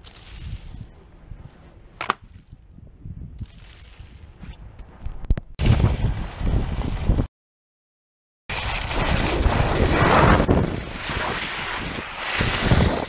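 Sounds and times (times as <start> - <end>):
wind buffeting microphone: 0.4 - 7.3, 8.7 - 13.0
skis hissing and scraping on snow: 8.5 - 13.0.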